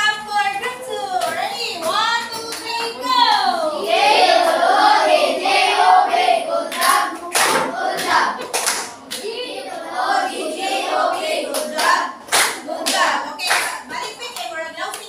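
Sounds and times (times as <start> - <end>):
children singing together: 3.4 - 8.5, 9.1 - 13.6
sharp hand claps: 6.7 - 9.3, 11.5 - 15.0.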